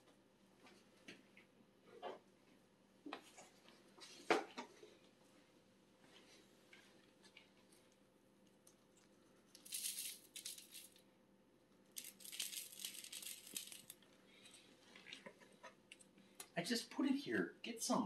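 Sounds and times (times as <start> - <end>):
dry leaves rattling in canister: 12.0 - 13.9.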